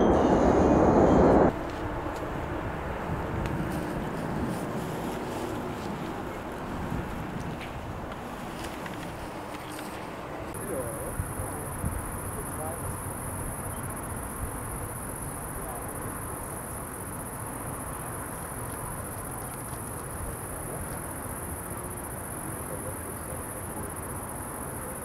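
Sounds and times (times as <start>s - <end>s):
low even rumble: 0.0s - 1.6s
crickets chirring: 10.5s - 25.0s.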